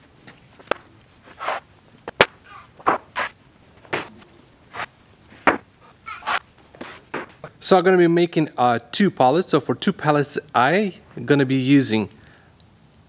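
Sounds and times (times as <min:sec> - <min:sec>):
footsteps on concrete: 0:00.6 - 0:07.5.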